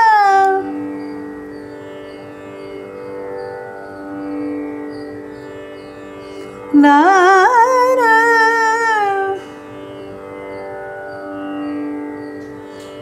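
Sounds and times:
person singing: 0:00.0 - 0:00.8, 0:06.7 - 0:09.5
tanpura drone: 0:00.0 - 0:13.0.

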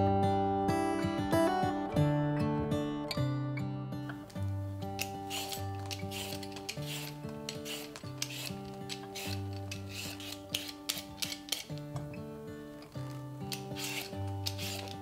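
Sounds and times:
soft background music: 0:00.0 - 0:15.0
vegetable peeler scraping potato: 0:04.1 - 0:15.0.

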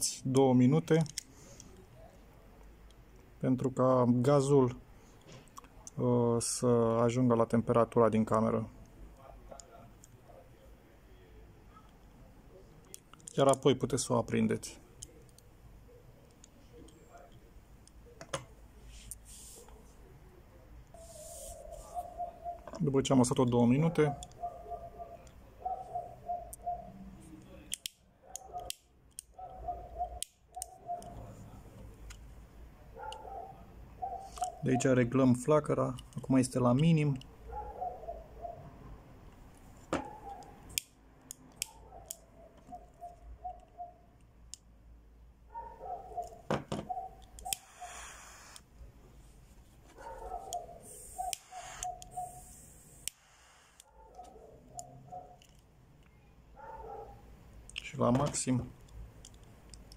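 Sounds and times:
lighter clicking: 0:47.4 - 0:48.6, 0:52.9 - 0:53.9.

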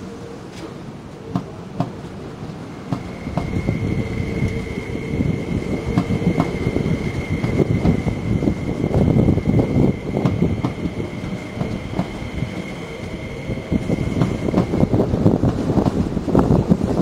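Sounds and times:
train wheels rumbling on rail: 0:00.0 - 0:17.0
steady high whine: 0:02.7 - 0:16.2.

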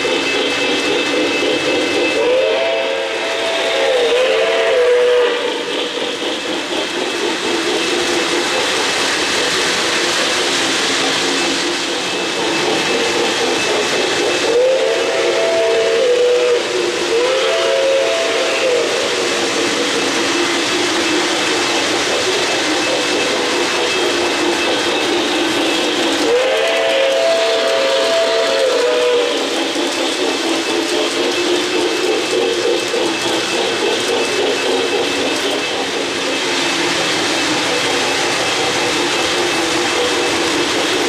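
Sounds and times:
model train wheels rumbling: 0:00.0 - 0:41.0
steam whistle blowing: 0:02.0 - 0:05.7, 0:14.4 - 0:19.2, 0:26.2 - 0:29.5.

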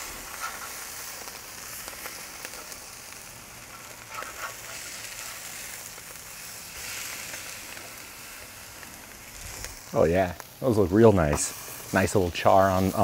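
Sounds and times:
burger patties sizzling on grill: 0:00.0 - 0:13.0.

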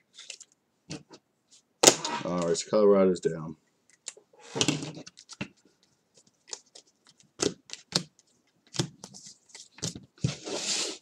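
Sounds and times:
trading cards clicking and snapping: 0:06.5 - 0:08.1.

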